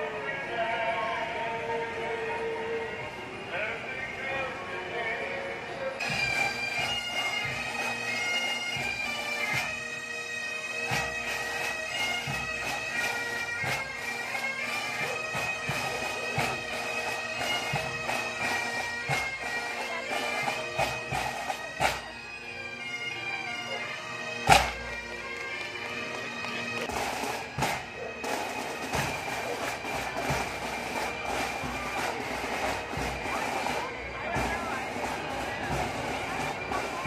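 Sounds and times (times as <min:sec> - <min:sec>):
bagpipes playing melody: 0:00.0 - 0:37.0
snare and bass drums: 0:24.5 - 0:24.8, 0:26.9 - 0:33.2.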